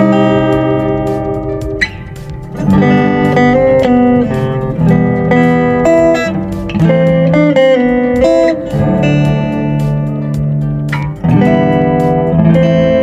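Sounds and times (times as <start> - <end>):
acoustic guitar picking melody: 0.0 - 13.0.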